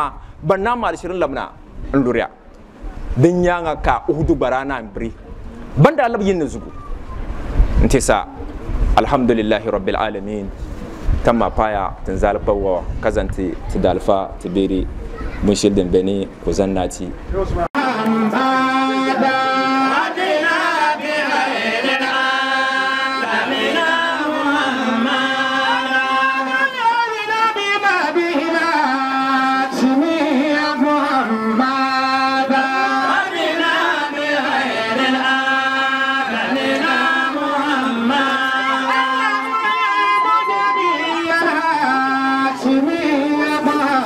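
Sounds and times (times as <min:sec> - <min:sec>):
person singing slow chant: 0:17.8 - 0:44.0.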